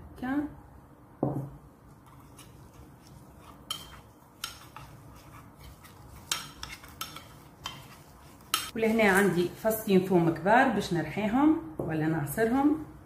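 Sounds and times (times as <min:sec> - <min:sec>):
spoon scraping a bowl: 0:01.9 - 0:09.5.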